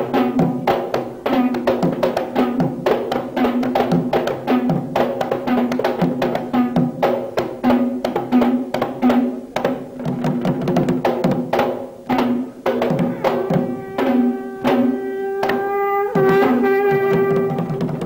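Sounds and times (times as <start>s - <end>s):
ceremonial drumming: 0.0s - 18.0s
held wind instrument note: 13.0s - 18.0s.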